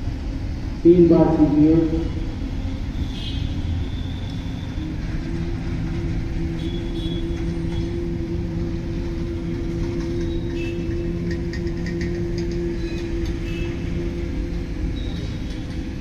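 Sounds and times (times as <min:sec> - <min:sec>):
people humming low drone: 0:03.6 - 0:16.0.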